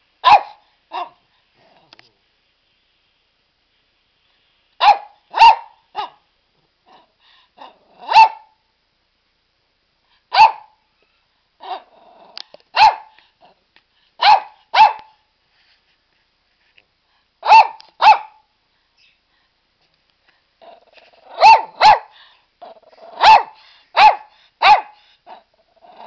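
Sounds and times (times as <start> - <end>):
small dog barking: 0.2 - 1.2, 4.8 - 6.3, 6.9 - 8.6, 10.3 - 10.8, 11.6 - 12.0, 12.7 - 13.2, 14.2 - 15.2, 17.4 - 18.5, 21.2 - 22.2, 22.8 - 25.5.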